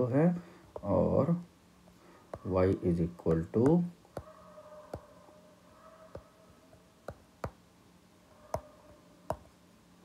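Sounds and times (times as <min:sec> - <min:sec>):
faint steady hum: 0:00.0 - 0:10.0
stylus tapping on glass screen: 0:07.0 - 0:07.6, 0:09.3 - 0:09.5.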